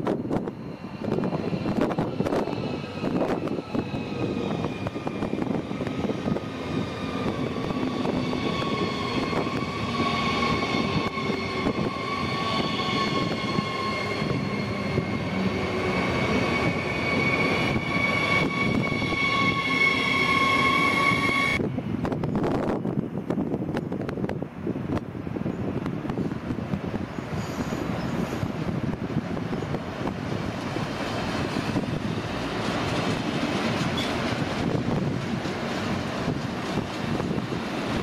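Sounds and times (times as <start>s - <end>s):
wheels rumbling on rails: 0.0s - 38.0s.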